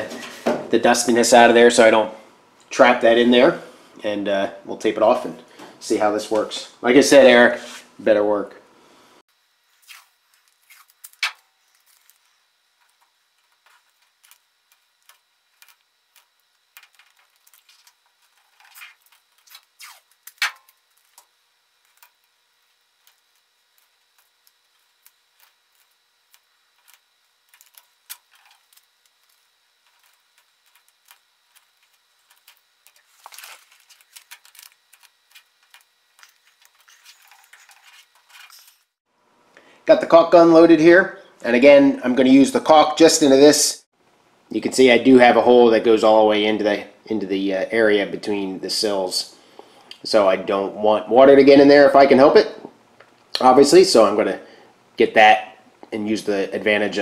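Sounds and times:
masking tape crackling: 9.6 - 39.0.

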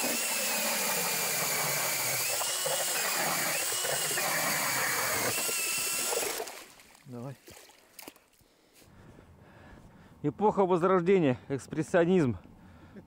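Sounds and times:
cordless drill motor whine: 0.0 - 6.4.

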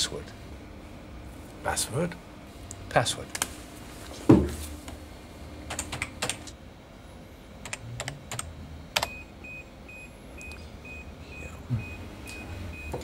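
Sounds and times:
faint high beep: 9.1 - 13.0.

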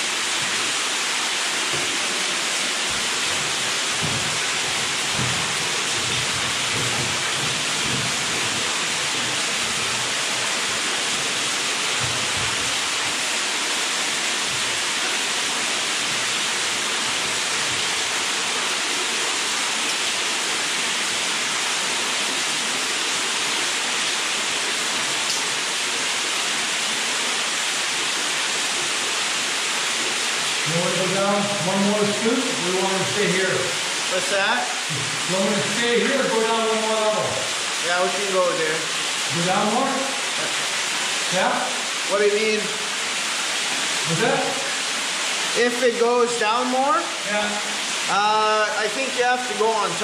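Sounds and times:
loud steady hiss: 0.0 - 50.0
low thumps: 2.9 - 10.0.

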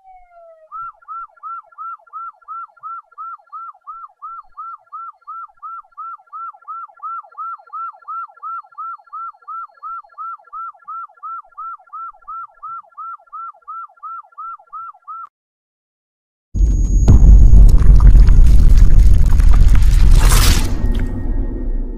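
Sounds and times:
police siren yelping: 0.0 - 4.7
loud low rumble: 16.6 - 21.9.

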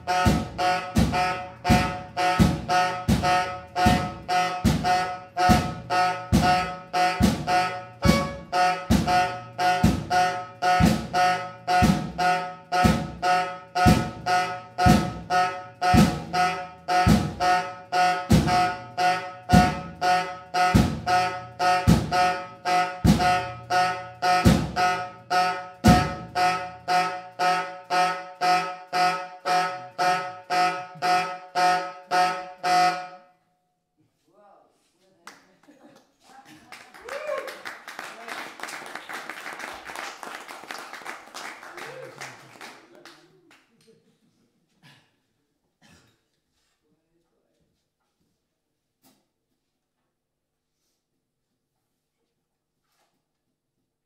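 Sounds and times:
low drum beat: 0.0 - 14.3, 14.9 - 17.6
pulsing vibraphone and saxophone notes: 0.0 - 33.1.

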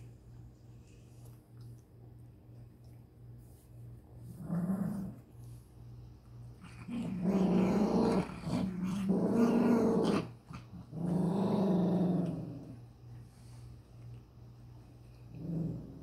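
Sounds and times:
dog growling: 4.3 - 5.2, 6.6 - 12.8, 15.3 - 16.0.

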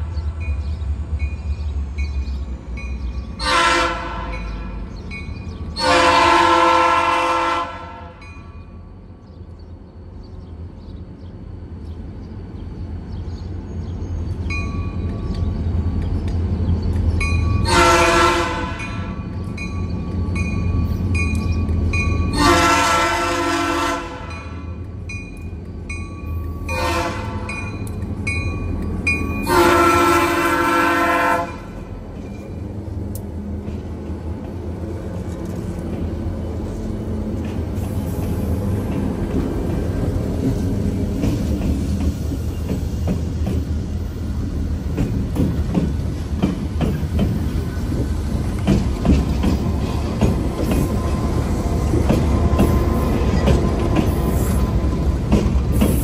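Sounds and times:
diesel locomotives rumbling: 0.0 - 56.0
locomotive air horn: 3.4 - 4.4, 5.8 - 8.2, 17.6 - 19.1, 22.3 - 24.6, 26.7 - 27.5, 29.4 - 31.8
wheels clacking over rail joints: 31.8 - 56.0.

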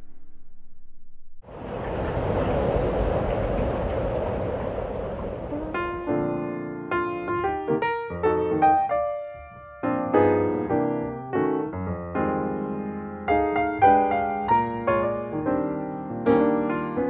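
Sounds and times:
piano music: 5.5 - 17.0.

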